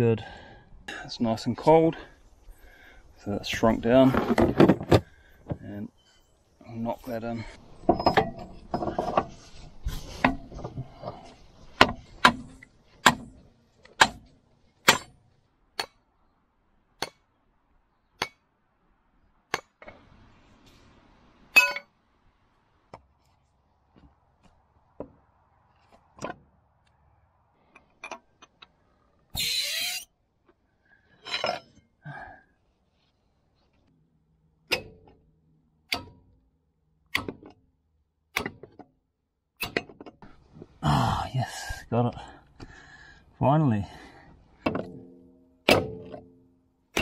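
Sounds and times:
hammer striking steel pin: 0:44.6 - 0:47.0.

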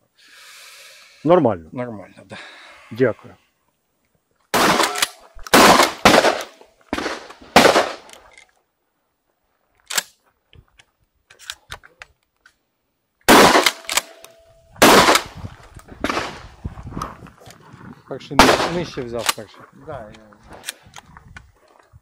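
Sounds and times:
loud gunshots: 0:04.6 - 0:08.1, 0:13.3 - 0:14.2, 0:14.8 - 0:15.4, 0:16.0 - 0:16.5, 0:18.4 - 0:19.0.

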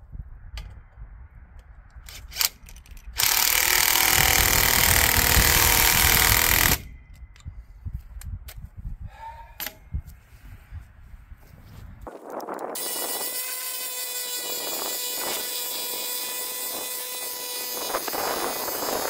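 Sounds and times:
sharp clicks: 0:01.6 - 0:07.5
impact driver hammering: 0:03.2 - 0:06.9.

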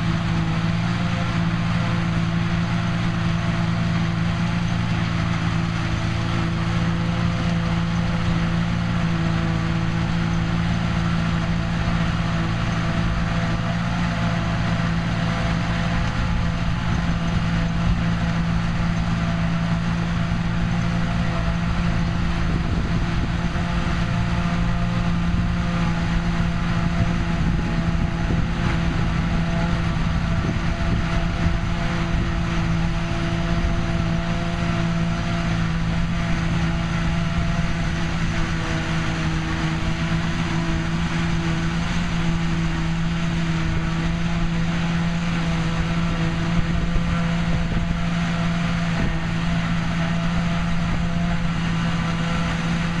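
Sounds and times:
tractor and harvester drone: 0:00.0 - 0:53.0.

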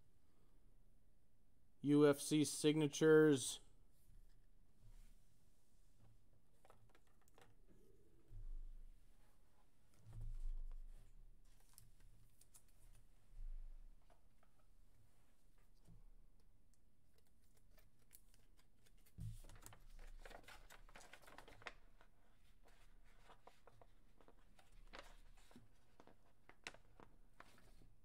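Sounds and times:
paper rustling: 0:17.2 - 0:28.0.

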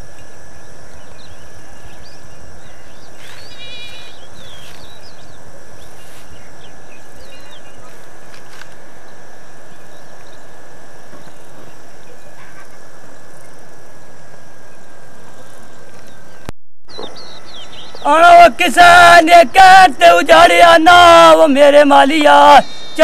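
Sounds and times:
thin high whine: 0:00.0 - 0:23.0
faint bird chirps: 0:00.5 - 0:08.1.

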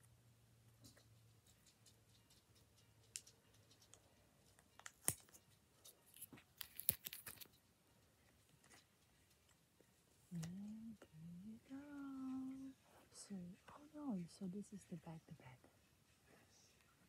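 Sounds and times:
tape peeling off plastic: 0:06.1 - 0:07.5.

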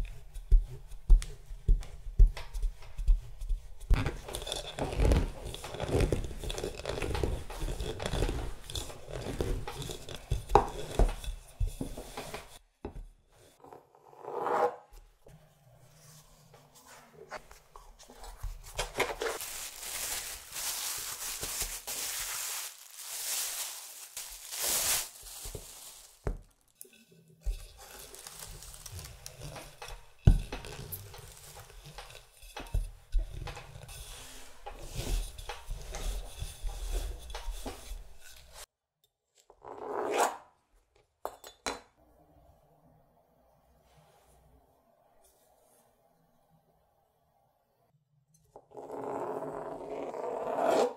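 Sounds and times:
dough rubbing and rustling: 0:00.0 - 0:12.6, 0:15.9 - 0:26.7, 0:27.4 - 0:38.7.

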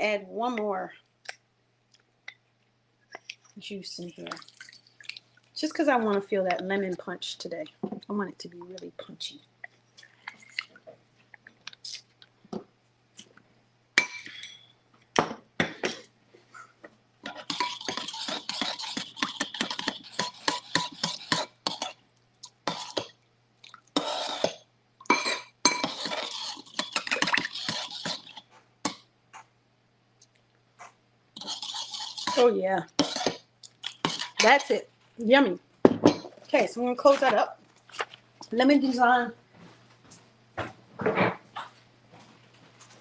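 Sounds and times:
metal spoon whisking in ceramic bowl: 0:17.2 - 0:22.0, 0:22.6 - 0:23.1, 0:24.0 - 0:29.5, 0:30.8 - 0:34.8.

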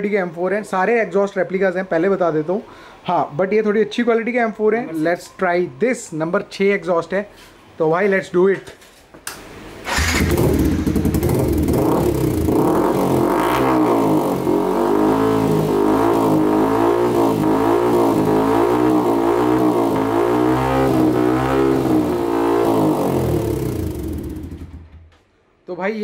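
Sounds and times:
motorcycle engine revving: 0:09.8 - 0:25.1.

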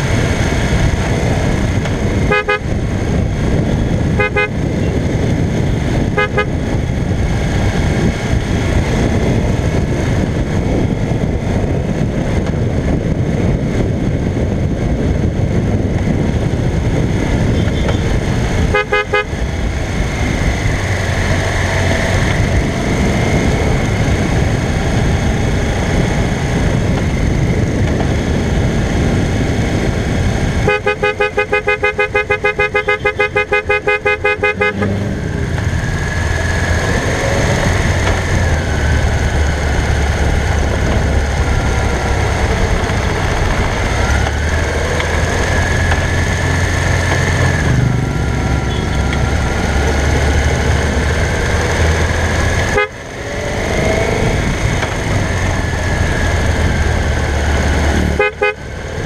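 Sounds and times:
motorcycle engine running: 0:00.0 - 0:59.0
wind noise on microphone: 0:00.0 - 0:59.0
horn beeping in quick pulses: 0:02.3 - 0:02.6, 0:04.2 - 0:04.6, 0:18.7 - 0:19.4, 0:30.6 - 0:35.0, 0:58.2 - 0:58.6.

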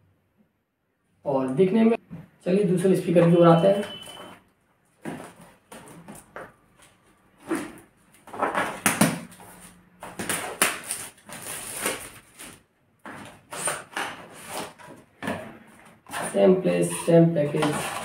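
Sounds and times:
cardboard rustles and scrapes: 0:05.0 - 0:15.0, 0:17.0 - 0:18.0.

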